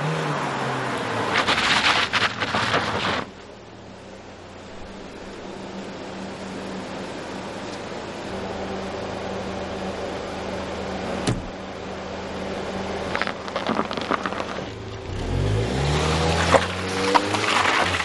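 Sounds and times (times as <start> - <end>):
car engine revving: 9.3 - 18.0.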